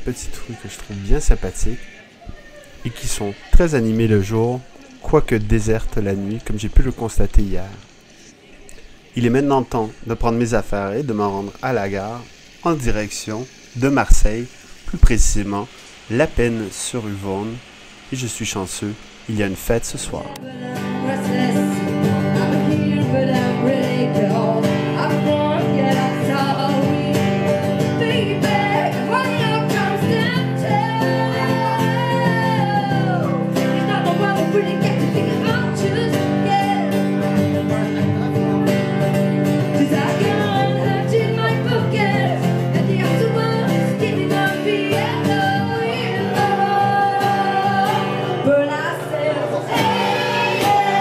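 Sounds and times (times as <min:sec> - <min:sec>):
acoustic guitar strumming: 0:08.8 - 0:51.0
woman singing into a microphone: 0:20.2 - 0:37.1, 0:39.8 - 0:51.0.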